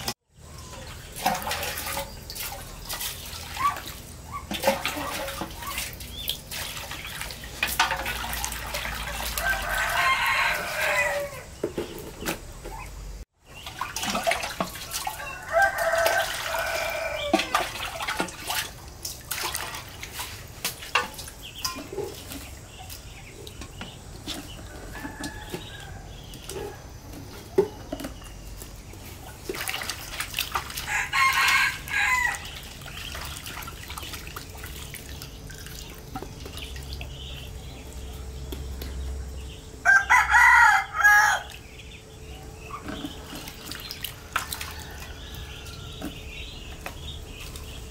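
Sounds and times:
water splashing: 0.0 - 11.3, 13.4 - 26.8, 27.5 - 39.0, 42.6 - 47.9
rooster crowing: 9.3 - 11.5, 15.0 - 17.7, 30.8 - 32.5, 39.8 - 41.6.

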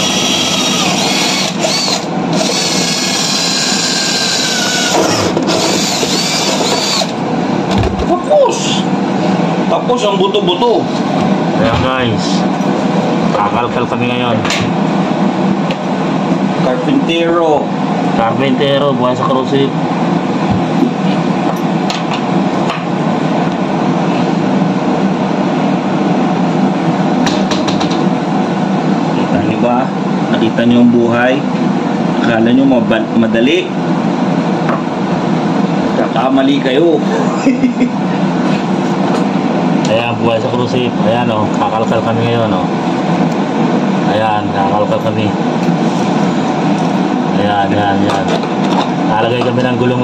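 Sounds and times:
power drill whining: 0.0 - 7.2
loud mechanical ventilation noise: 0.0 - 50.0.

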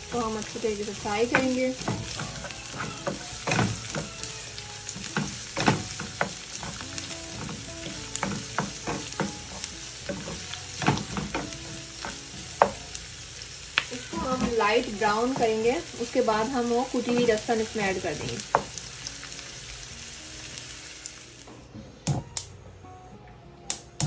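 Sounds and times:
onion sizzling in oil: 0.0 - 21.6.

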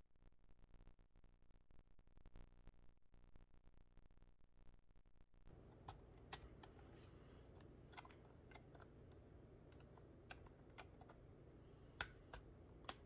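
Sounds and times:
low room noise: 0.0 - 13.0
plastic building blocks clicking: 11.9 - 13.0.

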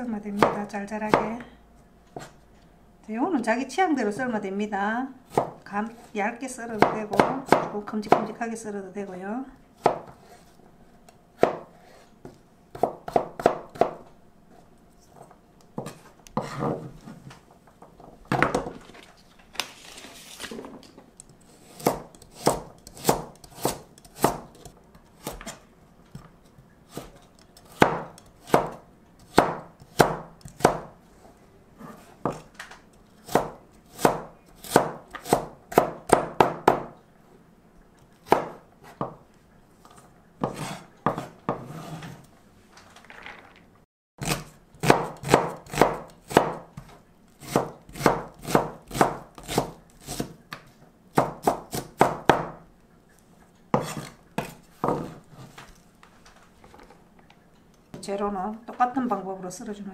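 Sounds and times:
knife chopping on plastic board: 5.3 - 5.6, 6.7 - 8.4, 9.8 - 10.4, 11.4 - 14.1, 21.6 - 26.3, 26.9 - 31.0, 31.8 - 32.5, 33.2 - 37.0, 38.2 - 39.2, 40.4 - 41.8, 44.2 - 52.6, 53.7 - 55.2.

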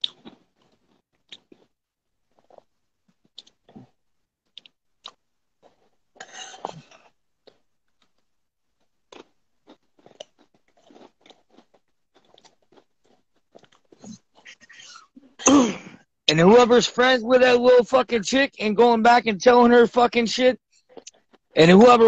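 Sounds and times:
person chewing crunchy food: 0.0 - 15.2, 20.8 - 21.6.

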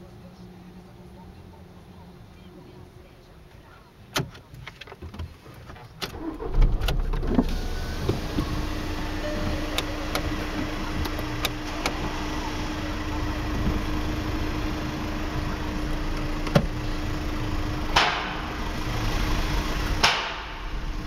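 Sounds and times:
car wash hum: 5.3 - 21.0.

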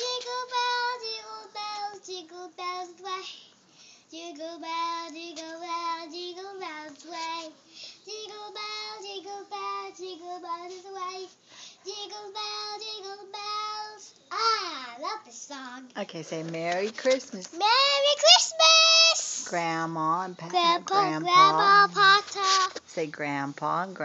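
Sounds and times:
boy singing: 0.0 - 3.5, 4.1 - 15.9, 17.5 - 19.4, 20.4 - 22.8
boy breathing: 3.3 - 4.1, 7.6 - 8.1, 10.7 - 11.9.

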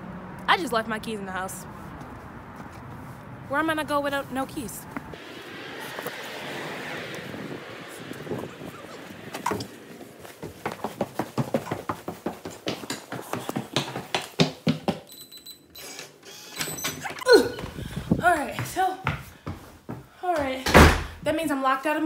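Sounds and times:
footsteps hurrying up stairs: 7.6 - 15.2, 16.8 - 21.2.

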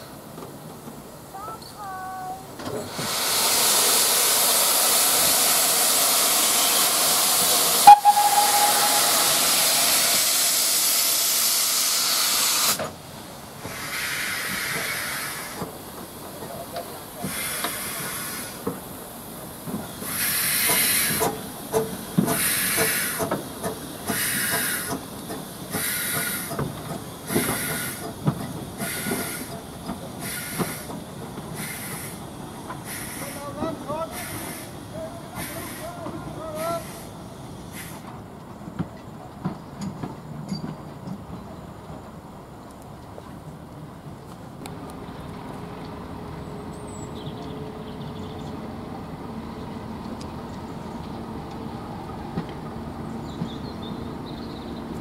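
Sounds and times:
sharp knock: 7.9 - 9.8.

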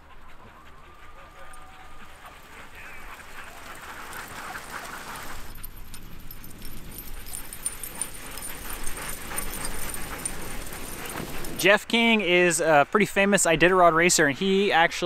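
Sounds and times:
dogs barking: 0.0 - 11.6.

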